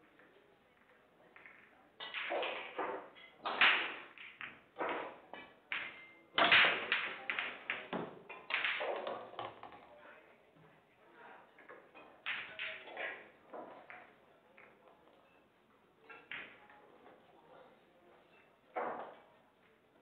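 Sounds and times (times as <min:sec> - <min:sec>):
pool balls clacking: 0:00.2 - 0:09.9, 0:11.6 - 0:15.2, 0:18.7 - 0:19.3
cue ball cracking into racked balls: 0:01.3 - 0:09.9, 0:12.2 - 0:14.8.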